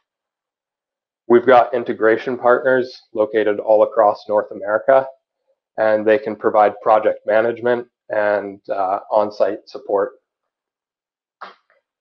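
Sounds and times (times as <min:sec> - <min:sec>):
man speaking: 0:01.3 - 0:05.1, 0:05.8 - 0:10.1.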